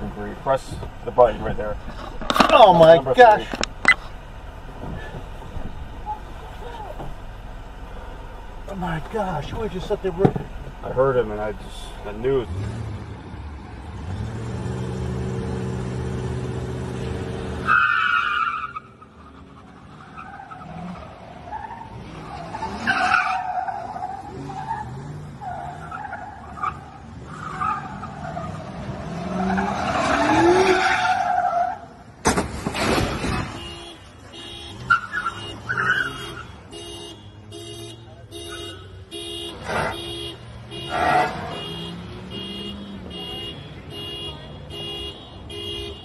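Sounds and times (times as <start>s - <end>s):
tyres squealing: 0.0s - 12.6s, 33.0s - 36.7s
truck engine revving: 0.0s - 18.0s, 18.7s - 44.5s.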